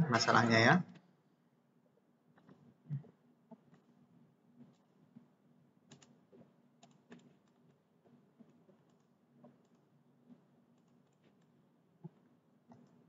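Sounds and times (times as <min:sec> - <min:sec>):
computer mouse and keyboard clicks: 0:05.9 - 0:07.8, 0:08.4 - 0:09.8, 0:10.8 - 0:13.0.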